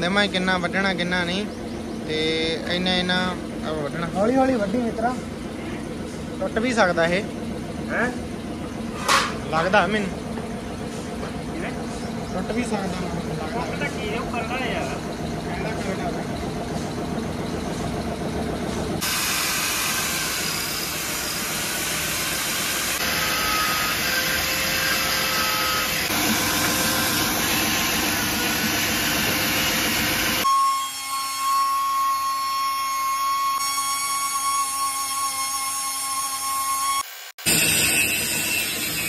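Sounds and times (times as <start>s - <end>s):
power tool high whine: 11.4s - 39.0s
angle grinder cutting: 18.6s - 39.0s.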